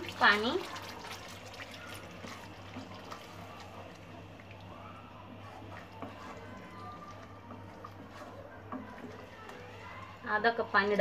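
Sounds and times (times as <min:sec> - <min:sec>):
water poured into a pan: 0:00.0 - 0:04.7
spatula stirring in a pan: 0:00.0 - 0:11.0.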